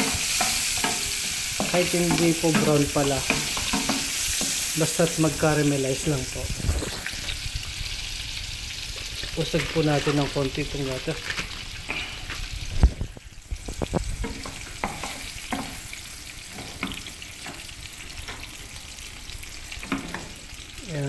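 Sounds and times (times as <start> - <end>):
wooden spatula scraping a pan: 0.0 - 5.5, 11.2 - 18.5
onions sizzling in a frying pan: 0.0 - 21.0.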